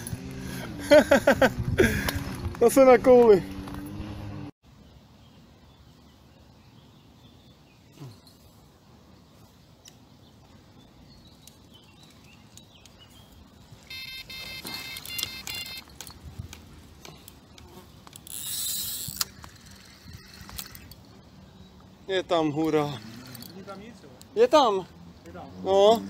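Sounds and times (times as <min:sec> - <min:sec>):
electronic bite alarm beeping: 0:13.9 - 0:16.0.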